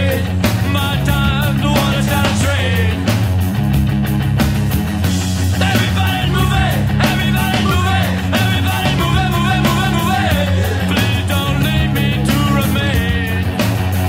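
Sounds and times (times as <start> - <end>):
person singing: 0.0 - 3.1, 5.6 - 13.6
steady bass line: 0.0 - 14.0.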